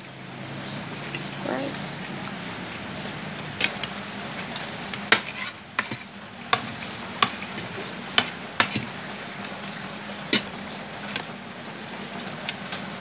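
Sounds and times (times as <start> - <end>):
cutlery clinking on plastic bowls: 10.3 - 11.3.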